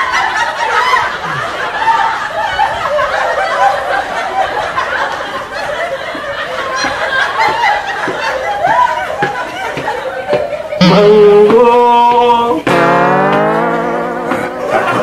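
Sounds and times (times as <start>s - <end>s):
laugh track: 0.0s - 15.0s.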